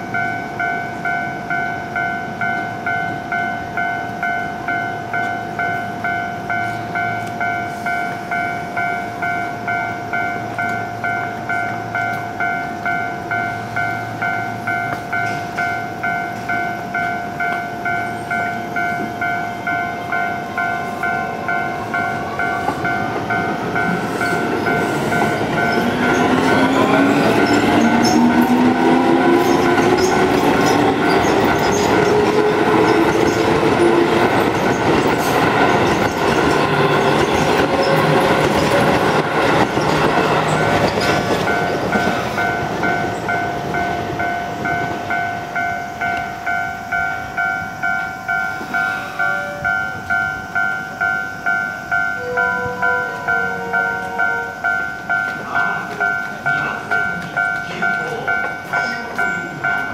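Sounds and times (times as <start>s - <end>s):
level crossing bell ringing: 0.0s - 34.2s, 39.0s - 59.9s
train wheels on rails: 0.0s - 59.9s.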